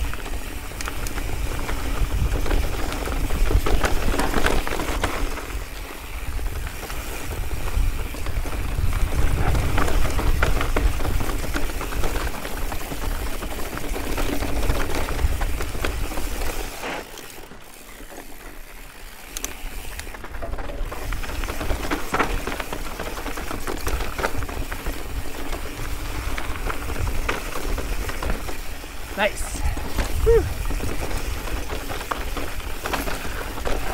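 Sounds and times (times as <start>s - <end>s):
bike frame and chain rattling: 0.0s - 33.9s
bike tyres crunching over rock: 0.0s - 33.9s
wind rushing over microphone: 6.2s - 12.0s.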